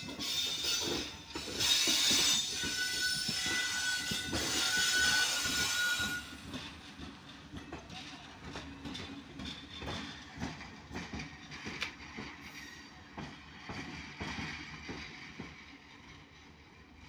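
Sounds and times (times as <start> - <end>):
train wheels clattering over rail joints: 0.0 - 16.9
wheel squeal: 0.1 - 6.4.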